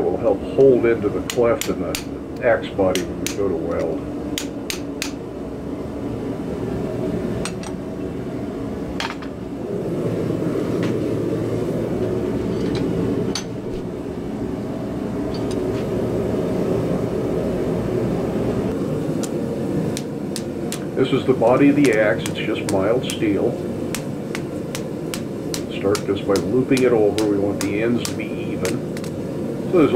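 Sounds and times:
gas forge burner roaring: 0.0s - 29.9s
hammer striking a chisel: 1.3s - 2.1s, 2.9s - 3.5s, 4.4s - 5.2s, 23.9s - 29.1s.

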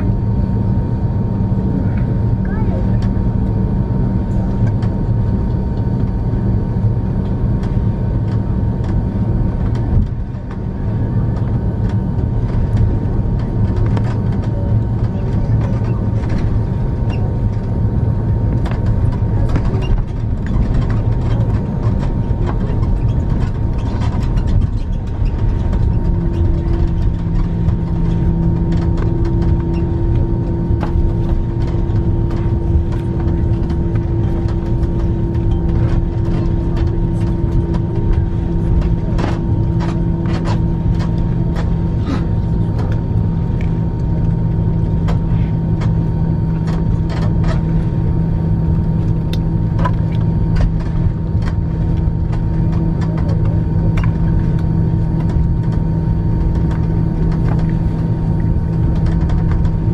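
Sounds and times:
aircraft engines idling rumble: 0.0s - 59.9s
steady hum: 0.0s - 59.9s.

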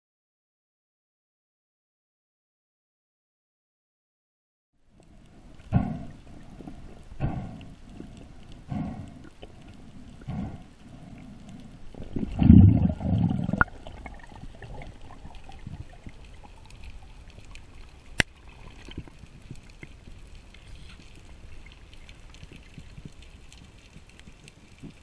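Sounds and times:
faint crackling: 4.8s - 25.0s
underwater rush of water: 5.0s - 25.0s.

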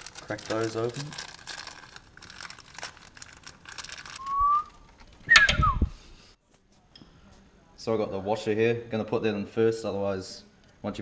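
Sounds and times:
plastic packet crinkling: 0.0s - 5.3s
whistled note: 4.2s - 6.0s.

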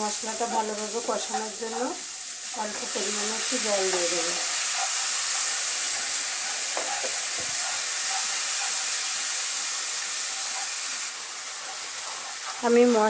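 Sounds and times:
spice paste sizzling in wok: 0.0s - 13.0s
wooden spatula stirring: 3.9s - 9.1s.

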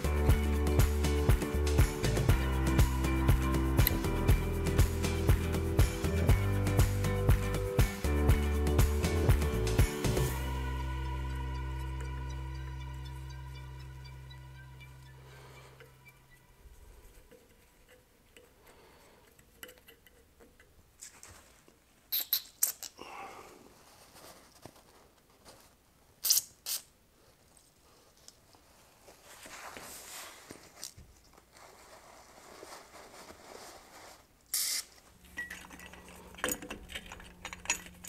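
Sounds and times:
aerosol spray hissing: 34.6s - 34.9s.

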